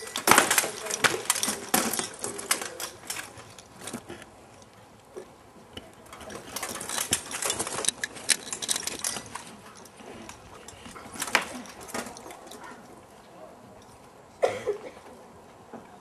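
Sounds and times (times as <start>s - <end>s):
rattan swords clattering on shields: 0.0s - 4.2s, 6.1s - 12.8s.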